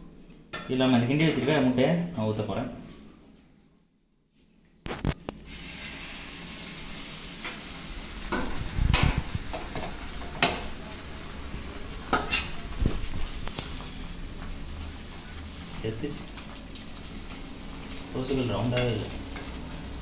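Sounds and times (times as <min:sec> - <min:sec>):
egg sizzling on a hot pan: 0:05.0 - 0:20.0.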